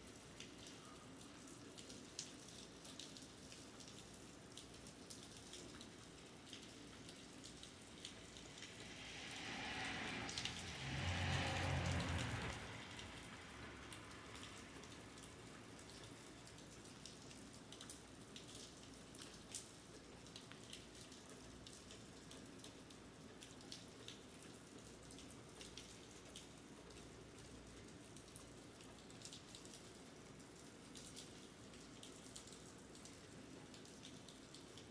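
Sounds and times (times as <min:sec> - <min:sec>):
rain pattering on pavement: 0:00.0 - 0:34.9
low rumble: 0:07.7 - 0:15.2.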